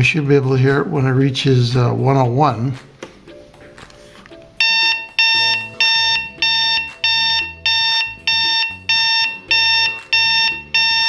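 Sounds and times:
alarm clock beeping: 4.6s - 11.0s.

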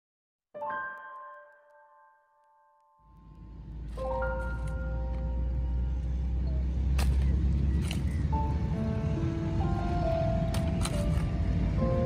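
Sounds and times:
background music held tones: 0.6s - 12.0s.

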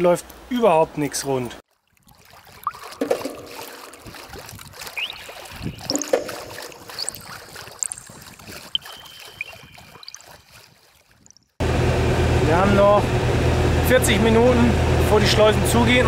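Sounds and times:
water and wind hiss: 0.0s - 11.5s
light knocks and splashes: 1.7s - 11.6s
high rising chirps: 4.9s - 10.3s.

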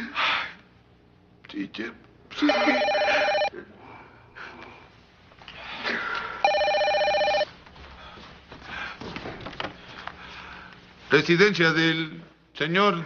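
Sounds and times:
telephone ringing electronic trill: 2.5s - 3.5s, 6.4s - 7.5s.

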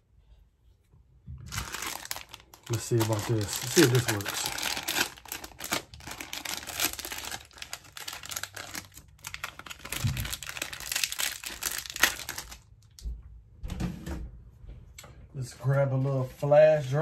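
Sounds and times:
plastic bag crinkling: 1.5s - 13.0s.

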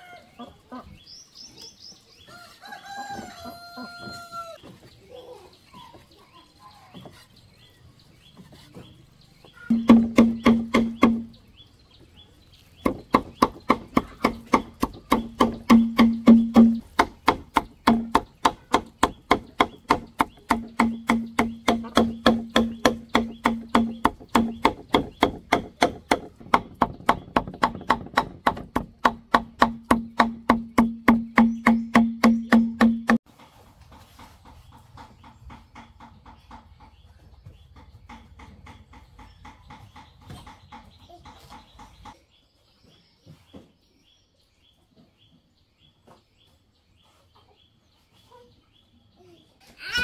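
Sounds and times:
knife chopping on wooden board: 9.7s - 11.3s, 12.8s - 33.2s.

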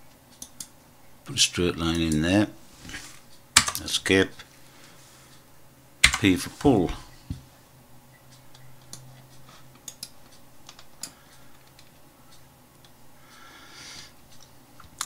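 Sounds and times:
computer mouse clicks: 0.3s - 0.7s, 8.5s - 9.2s, 9.8s - 11.9s.

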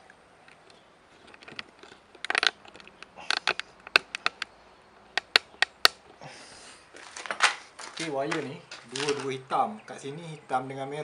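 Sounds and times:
small sharp clicks and rustles: 0.0s - 6.2s.

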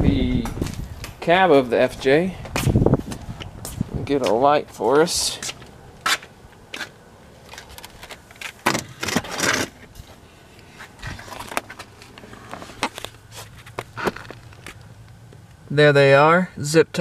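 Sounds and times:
rustling scrape: 6.1s - 14.7s.

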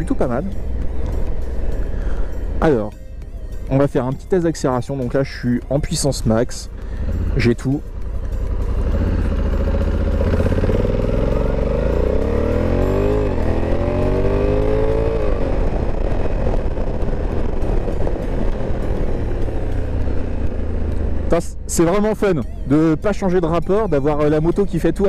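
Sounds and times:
motorcycle engine accelerating: 5.9s - 24.5s.

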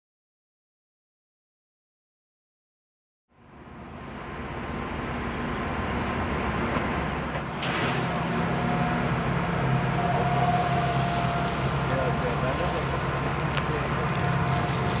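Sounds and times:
excavator diesel engine running: 3.5s - 15.0s.

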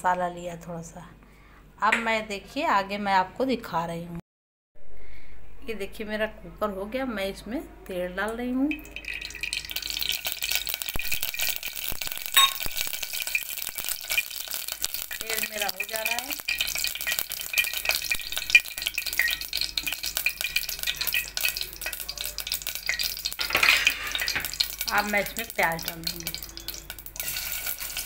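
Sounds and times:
oil sizzling and crackling: 8.7s - 28.0s.

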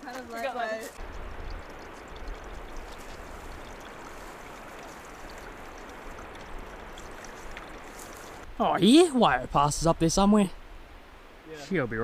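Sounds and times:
mountain stream rushing: 1.0s - 11.6s.

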